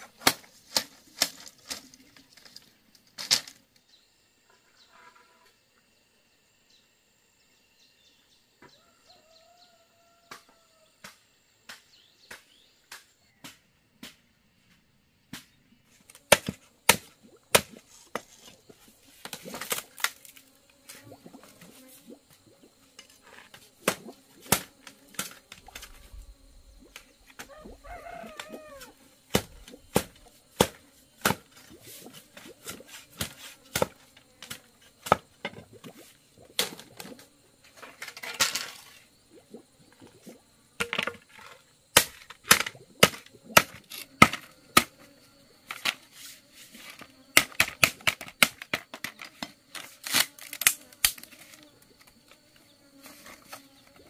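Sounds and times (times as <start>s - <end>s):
bamboo strips crackling: 0.0s - 3.6s, 46.9s - 51.6s
bamboo cracking and knocking: 0.0s - 3.9s, 10.3s - 26.2s, 26.8s - 39.1s, 40.8s - 45.1s, 46.9s - 52.3s
bamboo splitting rasp: 16.2s - 20.4s, 23.0s - 25.4s, 29.3s - 35.3s, 42.0s - 45.0s.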